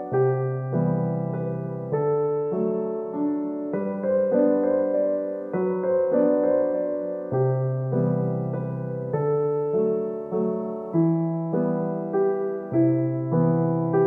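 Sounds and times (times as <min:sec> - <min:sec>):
soft piano-like chords: 0:00.0 - 0:14.0.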